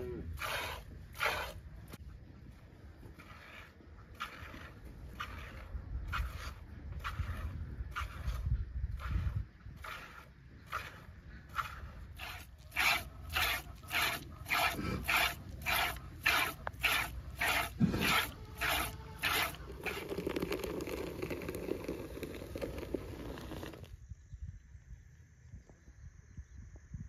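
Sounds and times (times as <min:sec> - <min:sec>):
milk squirting into pail: 0:09.8 - 0:24.0.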